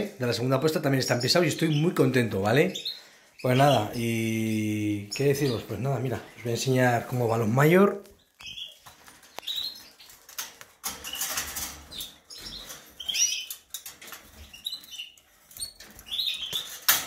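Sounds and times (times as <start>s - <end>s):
birds chirping: 0.0s - 17.0s.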